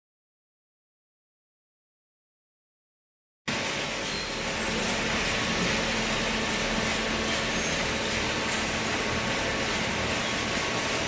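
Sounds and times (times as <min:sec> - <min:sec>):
baler machine running: 0:03.5 - 0:11.0.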